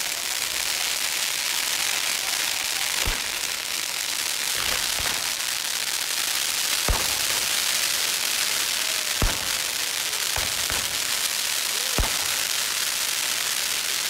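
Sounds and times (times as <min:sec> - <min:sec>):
fireworks fizzing hiss: 0:00.0 - 0:14.0
sharp firework bangs: 0:02.8 - 0:13.6.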